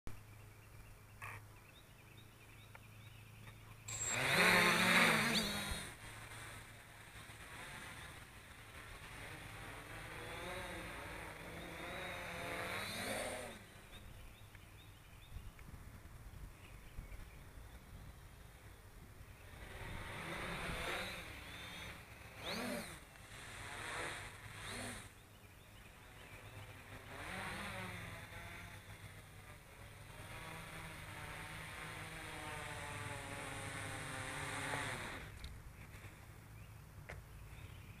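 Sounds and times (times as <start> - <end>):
drone motors whining: 2.7 - 14.6, 19.3 - 36.1
quadcopter propellers whirring: 2.9 - 36.7.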